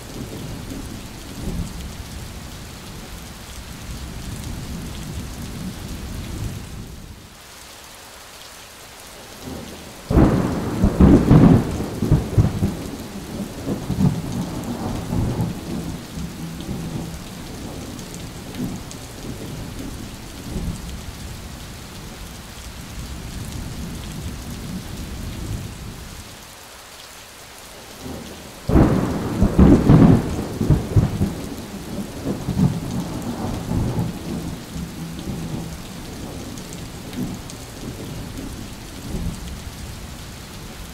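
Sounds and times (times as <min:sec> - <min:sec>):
heavy rain falling: 0:00.0 - 0:40.9
thunder rumbling: 0:10.1 - 0:21.2, 0:28.0 - 0:40.6.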